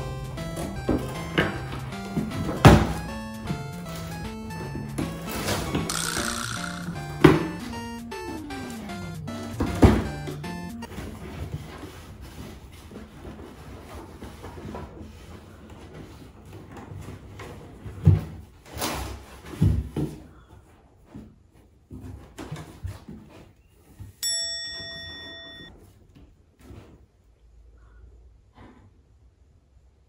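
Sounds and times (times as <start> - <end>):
bell-like ding: 24.2 - 25.7.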